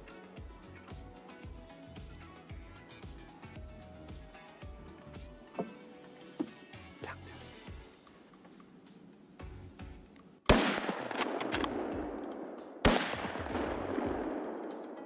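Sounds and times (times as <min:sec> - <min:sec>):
rifle shots with long echo: 0:10.5 - 0:15.0.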